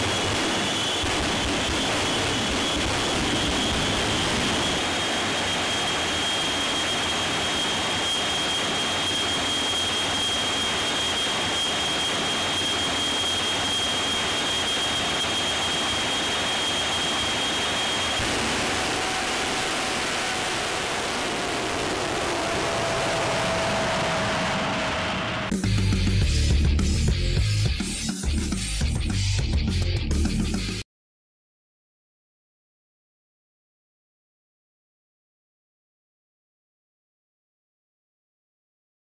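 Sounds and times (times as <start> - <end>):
jet engine rushing roar: 0.0 - 26.4
high whine: 0.0 - 29.5.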